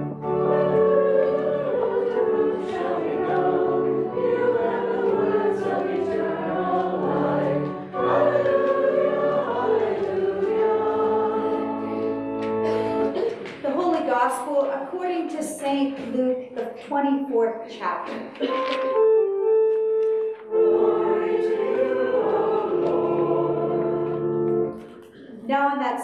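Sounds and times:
group of voices singing: 0.0s - 13.4s, 20.5s - 25.0s
organ accompaniment: 0.0s - 13.5s, 18.4s - 25.1s.

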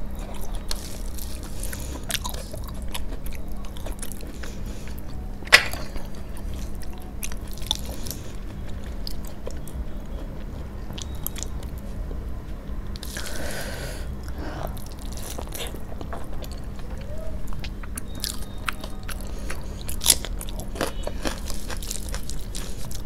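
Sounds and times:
person chewing food: 0.0s - 23.0s
fingers squishing food: 14.0s - 23.0s.

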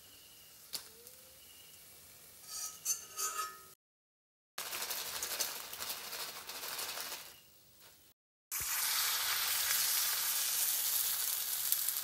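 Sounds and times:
hot oil sizzling and crackling: 0.0s - 3.7s, 4.6s - 7.4s, 8.5s - 12.0s
wire strainer clinking against iron pan: 2.4s - 3.8s.

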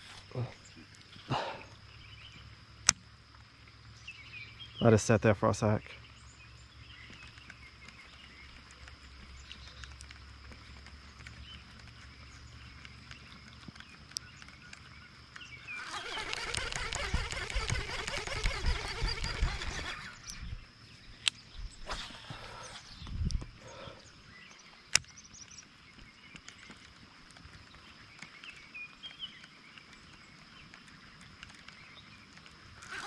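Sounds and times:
faint ticks: 6.9s - 15.5s
rattling whirring noise with bumps: 15.8s - 20.6s.

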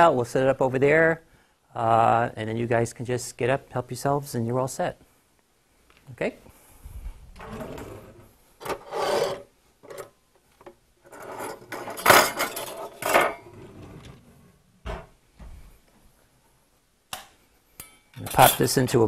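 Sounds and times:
metal cookware clattering and scraping: 11.1s - 13.8s.

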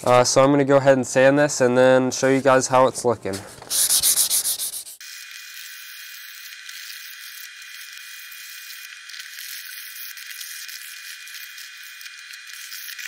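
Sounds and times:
sandpaper rubbing on metal: 3.6s - 8.6s.

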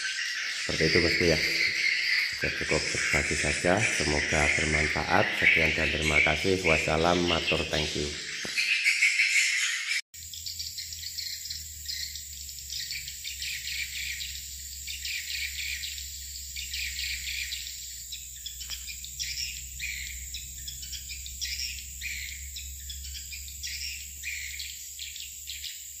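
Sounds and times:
birds chirping: 0.0s - 26.0s
steady high-pitched tone: 0.6s - 8.3s.

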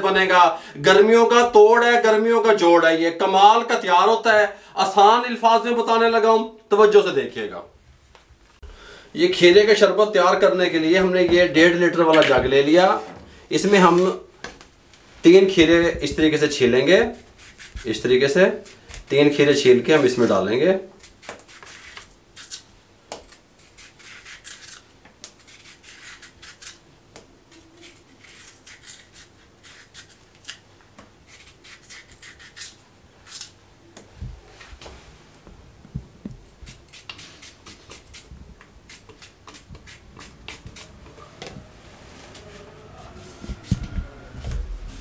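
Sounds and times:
knife scraping cucumber skin: 17.0s - 19.1s, 19.8s - 26.8s, 27.5s - 30.6s, 31.2s - 33.6s, 36.4s - 41.0s.

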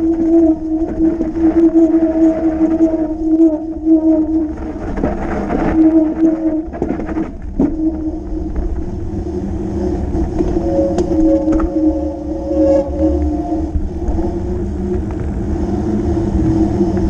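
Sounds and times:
bike rattling and scraping: 0.0s - 17.0s
bike tyres humming on road: 0.0s - 17.0s
wind rumble on microphone: 0.0s - 17.0s.

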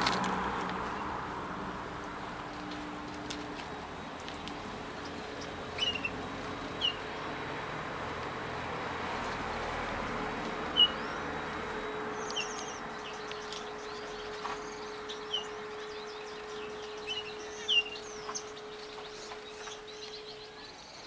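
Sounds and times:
finches chirping: 5.4s - 6.2s, 6.8s - 7.0s, 10.7s - 11.5s, 12.1s - 21.0s.

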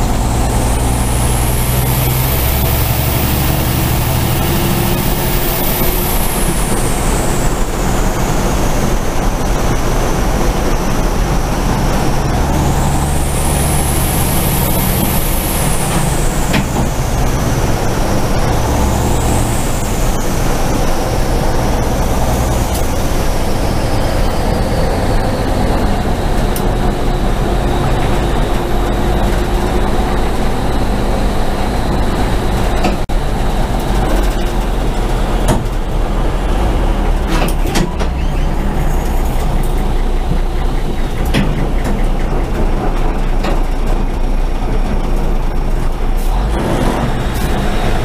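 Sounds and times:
diesel engine running hard: 0.0s - 48.0s
wind and road noise: 0.0s - 48.0s
sharp knocks and rattles: 33.6s - 48.0s.

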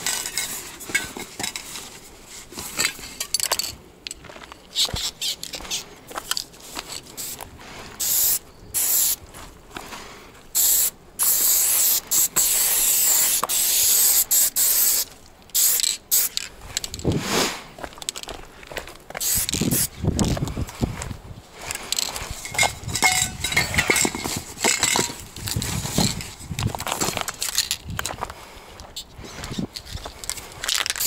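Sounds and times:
handling and scuffing noises: 0.0s - 8.1s, 16.2s - 31.0s
spray paint can hissing: 7.2s - 7.4s, 8.0s - 9.2s, 10.5s - 16.5s, 19.2s - 19.9s.

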